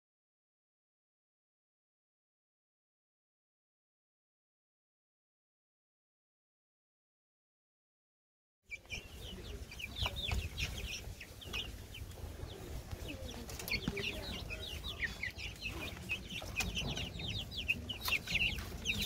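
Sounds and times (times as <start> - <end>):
chicks peeping: 8.7 - 19.0.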